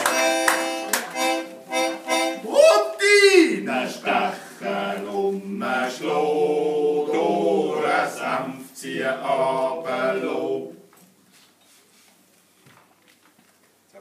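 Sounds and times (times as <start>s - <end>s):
voices singing a cappella: 1.7s - 10.9s.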